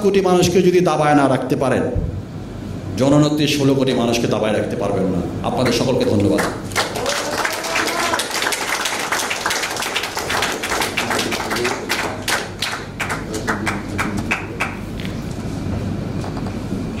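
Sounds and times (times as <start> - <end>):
audience applauding: 6.3 - 14.8.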